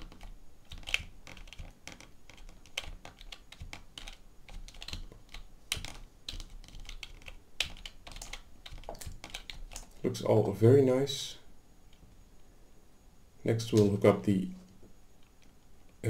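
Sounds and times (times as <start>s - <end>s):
computer keyboard typing: 0.0s - 10.0s.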